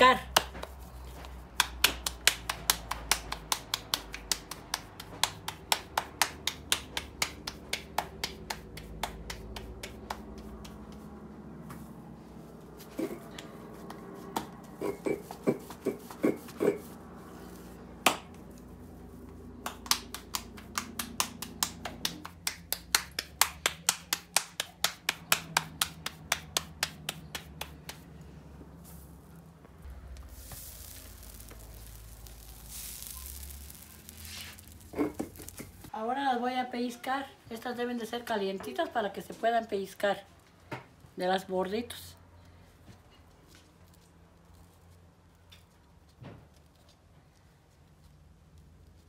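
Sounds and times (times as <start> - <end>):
hands patting dough: 0.0 - 11.9, 12.7 - 35.9.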